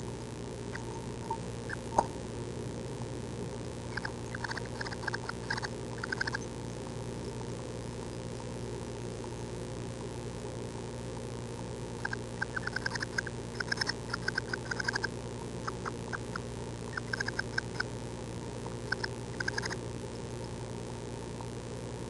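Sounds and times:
steady background hum: 0.0 - 22.0
nestlings begging with high peeps: 0.7 - 1.9, 3.9 - 6.8, 12.0 - 17.9, 18.8 - 19.8.

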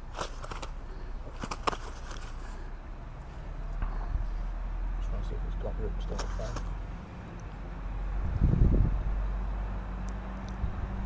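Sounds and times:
net rustles and clicks: 0.0 - 2.6, 6.0 - 6.8
low steady rumble: 0.0 - 11.0.

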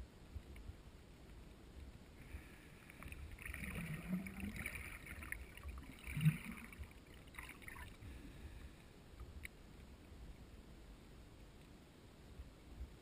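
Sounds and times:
faint clicks: 0.3 - 5.4, 9.1 - 10.5, 11.4 - 11.8
muffled underwater water sloshing: 1.8 - 10.7.

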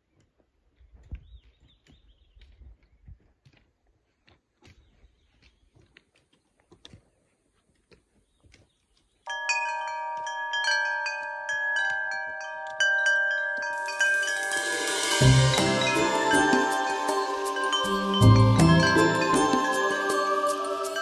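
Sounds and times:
ringing bell tones music: 9.3 - 21.0
high shimmer: 13.7 - 21.0.

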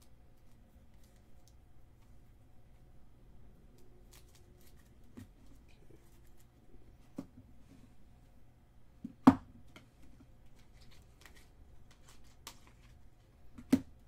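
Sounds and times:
cards clicking and tapping: 9.0 - 12.9.

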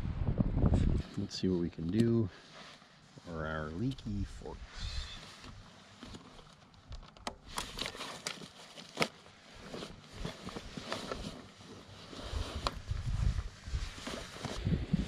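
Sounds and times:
fabric bag rustling: 7.5 - 14.6.

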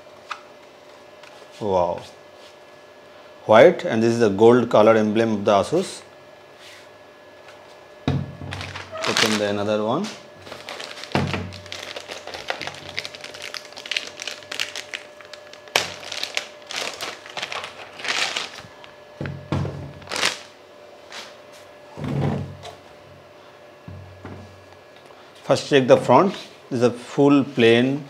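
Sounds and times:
plastic bag crinkling: 8.5 - 9.6, 10.4 - 18.9, 20.0 - 20.5.

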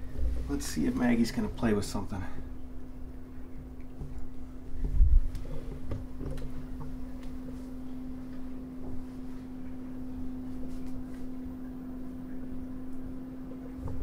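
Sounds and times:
steady hum: 0.0 - 14.0
faint clicks and rustles: 3.3 - 11.7.

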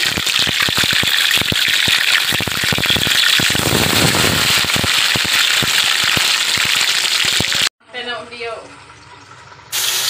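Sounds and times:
oil popping and crackling: 0.0 - 7.7
fish deep-frying in oil: 0.0 - 10.0.

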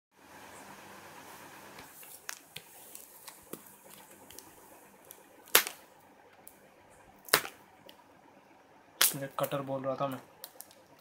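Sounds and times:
sharp snaps of cardboard box: 5.5 - 5.8.

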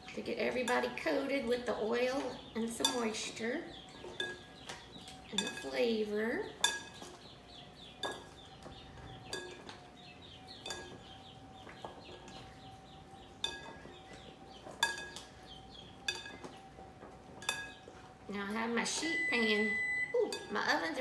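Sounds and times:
spoons clinking glass bowl: 10.6 - 11.0.

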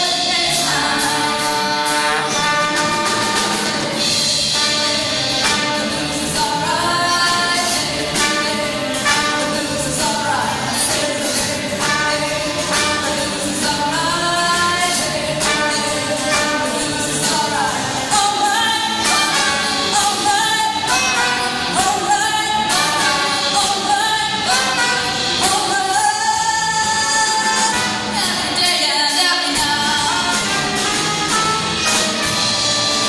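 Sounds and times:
women singing: 0.0 - 3.3, 4.5 - 31.2
live pop band: 0.0 - 33.0.

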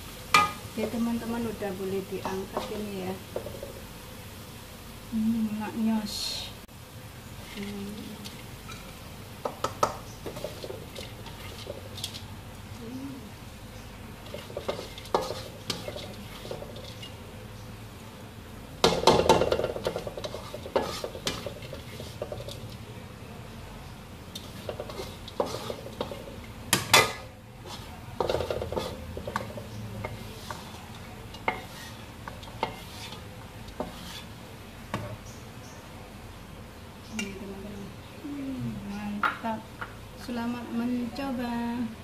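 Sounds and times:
spatula scraping a wok: 0.3 - 3.9, 7.4 - 12.3, 14.1 - 17.4, 18.8 - 22.9, 24.2 - 35.2.

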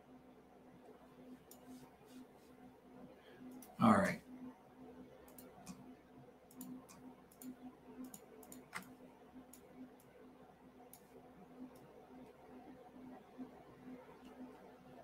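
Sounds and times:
faint low hum: 0.0 - 15.0
computer mouse clicks: 1.4 - 1.8, 3.4 - 3.8, 5.2 - 5.9, 6.5 - 10.2, 10.8 - 12.4.

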